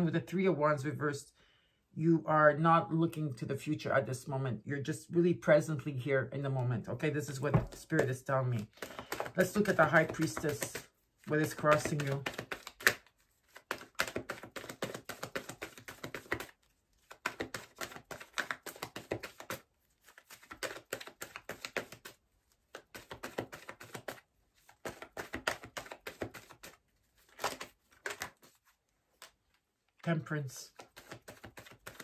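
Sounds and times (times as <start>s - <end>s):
cards being shuffled: 7.2s - 30.0s, 30.6s - 32.0s.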